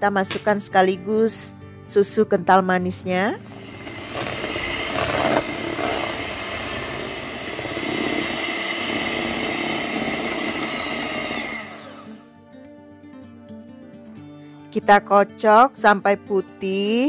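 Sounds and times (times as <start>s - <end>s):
electric hand mixer whining: 3.4s - 12.3s.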